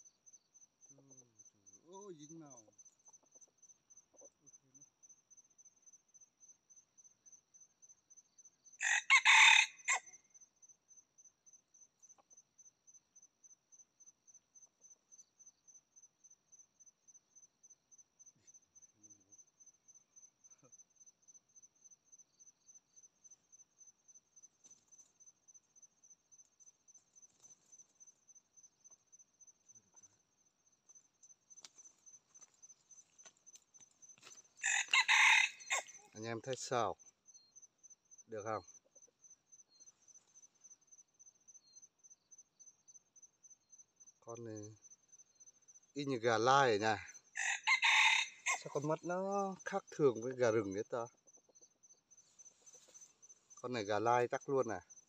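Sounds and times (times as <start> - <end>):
insect pulsing chirp: 0.0 - 55.0
rooster crowing: 8.8 - 10.2, 34.6 - 36.0, 47.4 - 48.8.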